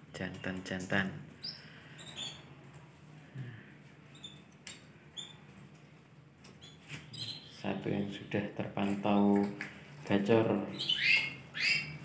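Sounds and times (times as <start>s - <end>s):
canary chirping: 1.4s - 2.5s, 4.1s - 5.6s, 6.4s - 7.8s, 10.7s - 12.0s.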